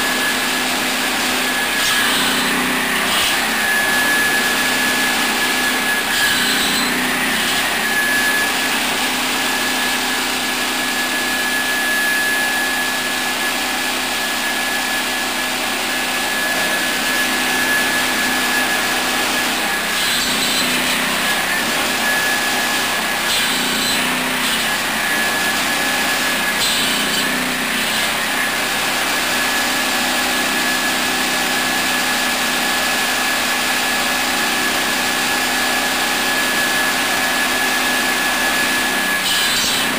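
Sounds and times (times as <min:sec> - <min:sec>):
circular saw whine: 0:00.0 - 0:39.9
saw blade cutting wood: 0:00.0 - 0:39.9.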